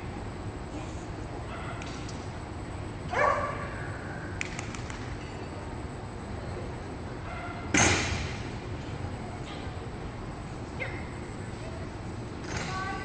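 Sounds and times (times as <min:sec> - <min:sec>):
dog barking: 0:01.5 - 0:01.8, 0:03.1 - 0:03.8, 0:07.3 - 0:07.6.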